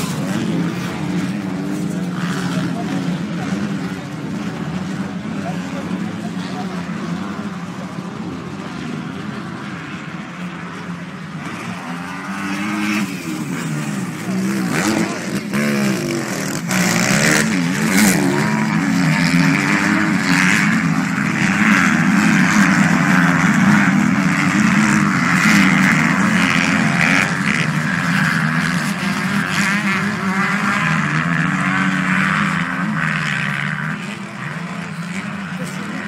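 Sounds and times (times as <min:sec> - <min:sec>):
motorcycle engines revving: 0:00.0 - 0:36.0.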